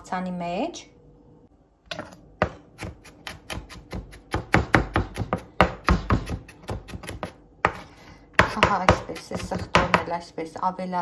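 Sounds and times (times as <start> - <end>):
knife chopping on cutting board: 1.9 - 10.1.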